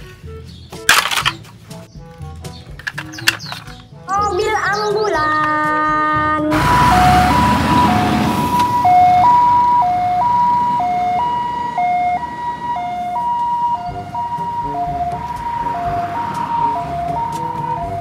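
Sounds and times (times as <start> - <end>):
passing road traffic: 6.0 - 18.0
ambulance siren two-tone: 6.5 - 18.0.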